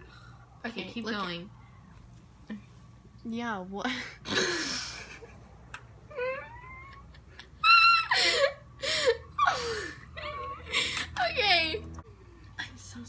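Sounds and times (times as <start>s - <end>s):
girls laughing: 6.2s - 11.8s.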